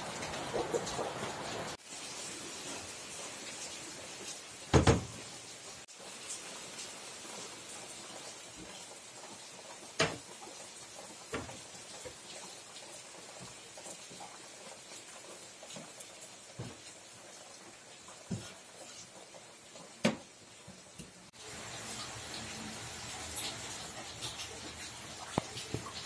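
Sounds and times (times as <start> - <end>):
rain hissing: 0.0 - 26.0.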